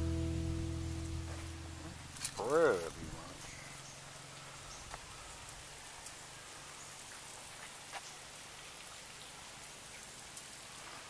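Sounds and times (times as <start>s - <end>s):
faint outdoor hiss: 0.0s - 11.0s
faint ticks: 4.7s - 6.2s, 9.6s - 11.0s.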